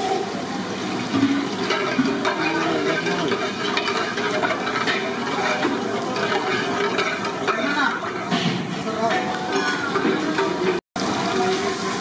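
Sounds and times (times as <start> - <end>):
seeds sizzling and popping in oil: 1.0 - 8.4
metal spatula stirring in pot: 1.1 - 10.8.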